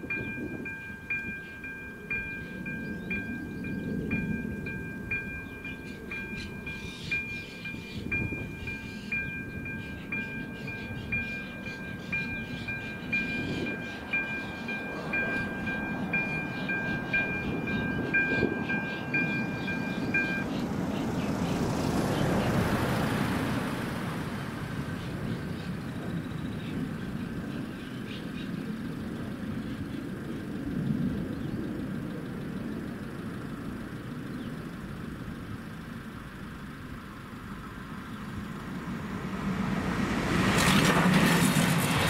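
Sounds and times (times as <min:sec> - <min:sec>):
level-crossing warning bell ringing: 0:00.0 - 0:25.0
rushing noise: 0:38.3 - 0:42.0.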